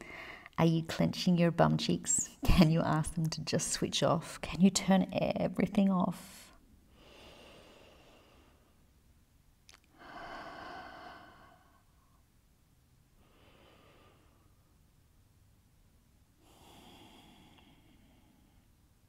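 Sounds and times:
woman breathing deeply: 0.0 - 0.5, 6.9 - 8.8, 9.9 - 12.2, 13.2 - 14.8, 16.4 - 18.8.

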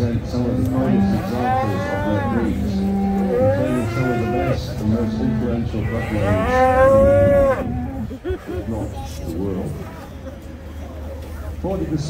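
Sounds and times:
cattle mooing: 0.7 - 8.0.

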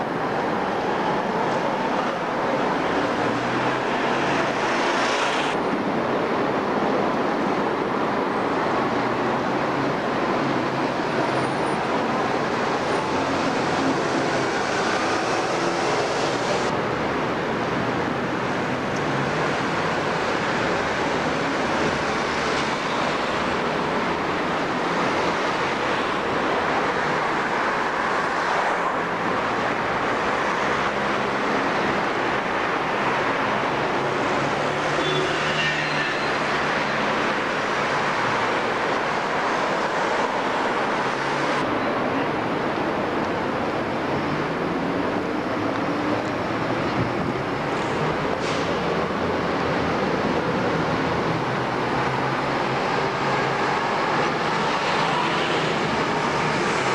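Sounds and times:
buses and cars passing: 0.0 - 56.9.

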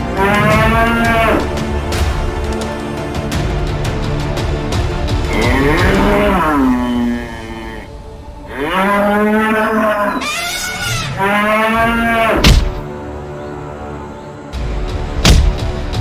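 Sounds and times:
bull bellowing: 5.3 - 7.9, 8.5 - 12.7.

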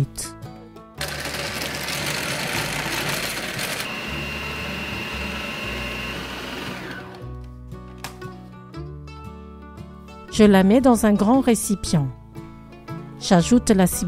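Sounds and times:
food processor mincing meat: 1.0 - 7.3.

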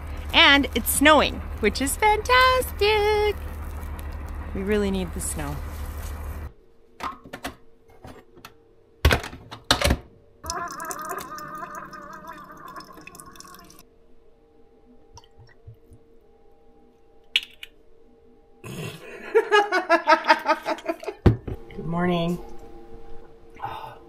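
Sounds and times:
liquid gurgling and sputtering: 10.4 - 13.8.

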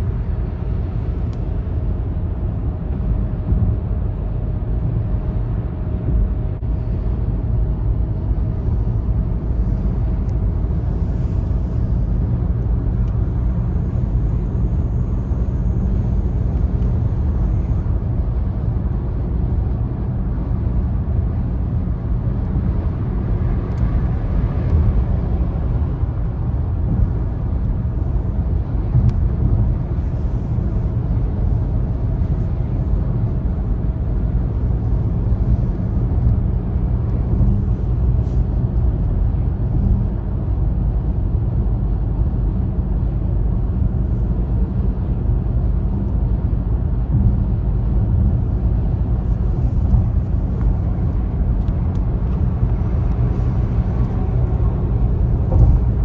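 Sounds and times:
car road noise drone: 0.0 - 56.0.

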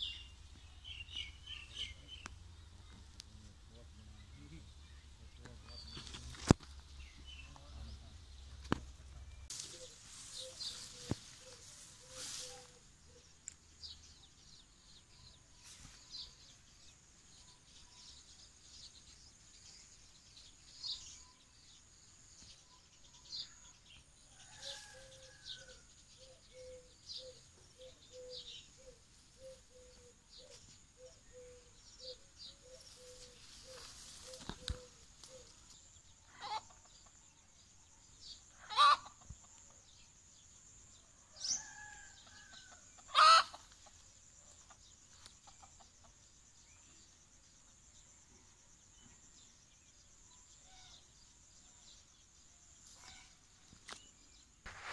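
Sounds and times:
small birds chirping: 0.0 - 54.9
chickens clucking: 36.4 - 37.2, 38.6 - 39.8, 43.0 - 46.2.

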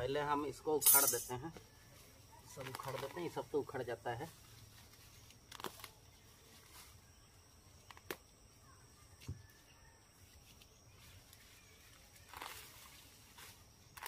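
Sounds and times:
rustling of stems and leaves: 0.9 - 8.2, 9.4 - 14.0
stems snapping: 5.5 - 6.0.

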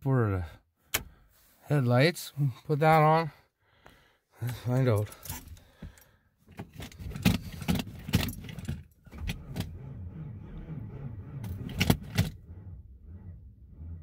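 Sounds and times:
starter cranking engine: 9.1 - 14.0.

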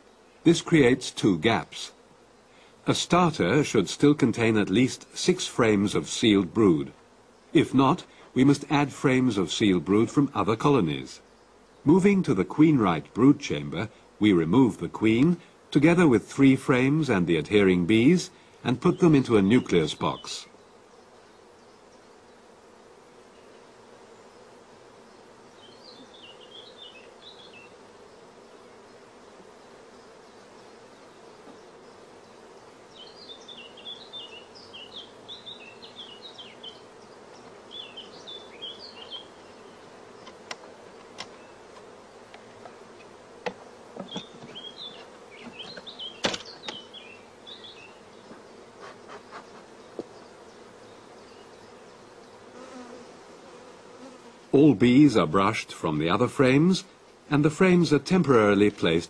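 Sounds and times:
honeybees buzzing: 0.0 - 59.0
wooden frames knocking on hive: 43.4 - 47.0, 47.6 - 50.2.

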